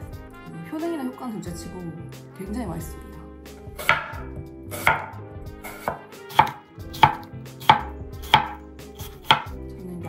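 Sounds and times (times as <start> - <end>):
knife slicing onto cutting board: 3.8 - 9.5.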